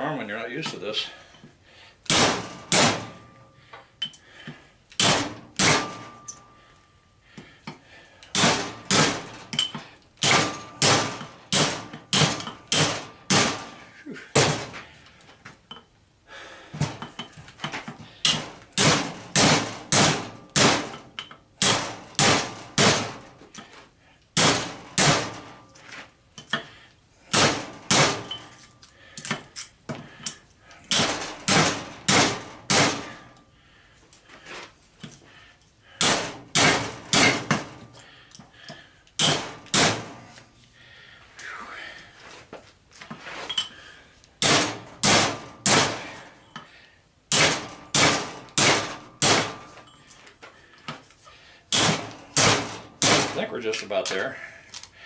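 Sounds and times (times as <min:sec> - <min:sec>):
hammer striking steel punch: 0:02.1 - 0:03.4, 0:05.0 - 0:06.4, 0:08.3 - 0:14.8, 0:18.2 - 0:23.2, 0:24.4 - 0:25.4, 0:27.3 - 0:28.5, 0:30.9 - 0:33.3, 0:36.0 - 0:37.8, 0:39.2 - 0:40.2, 0:44.4 - 0:46.2, 0:47.3 - 0:49.8, 0:51.7 - 0:53.6.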